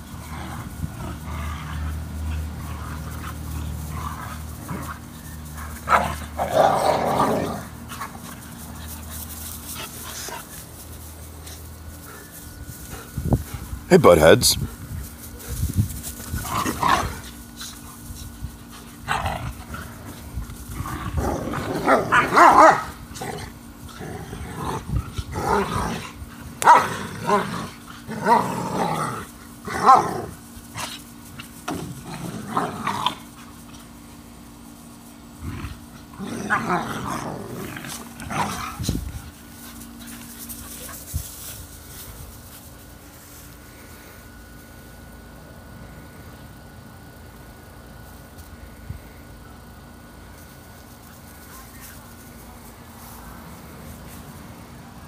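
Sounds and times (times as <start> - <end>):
dogs growling and barking: 0.0 - 13.8, 16.0 - 34.0, 35.2 - 41.5.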